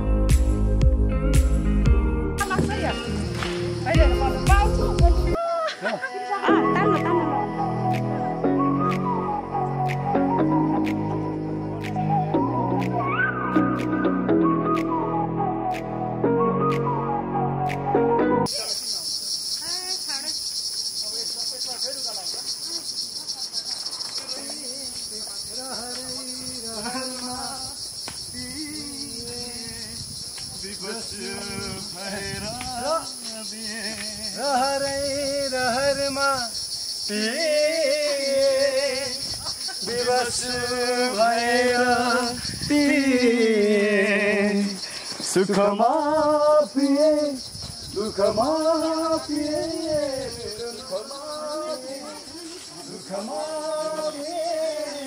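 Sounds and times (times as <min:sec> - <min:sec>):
insect chorus buzzing: 0:02.4 - 0:13.3, 0:18.5 - 0:55.0
person singing long wavering notes: 0:05.2 - 0:13.0
high shaker-like hiss: 0:18.5 - 0:55.0.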